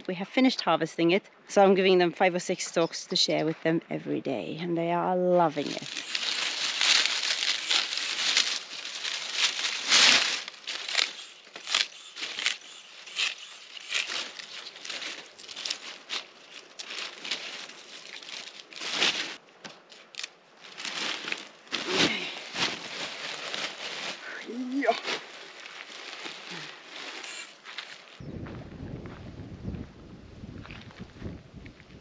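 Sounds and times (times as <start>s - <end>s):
dry corn stalks rustling: 5.3s - 28.2s
sharp snaps and crunches: 5.8s - 22.7s.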